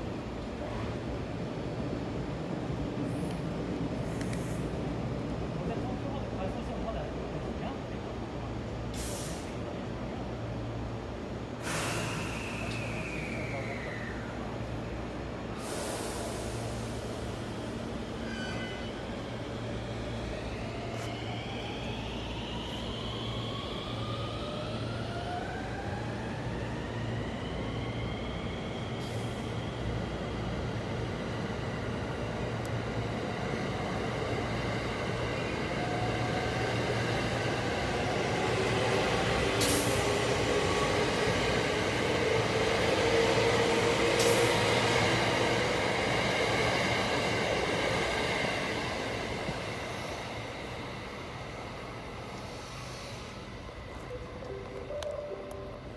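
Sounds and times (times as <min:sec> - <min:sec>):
train wheels rumbling on rail: 0:00.0 - 0:55.7
train whine rising in pitch: 0:11.9 - 0:15.1, 0:18.2 - 0:30.4.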